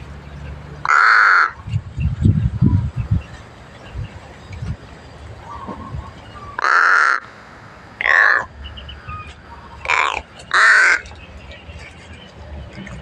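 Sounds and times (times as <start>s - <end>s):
crows cawing: 0.8s - 1.6s, 6.4s - 7.4s, 8.0s - 8.6s, 9.7s - 11.1s.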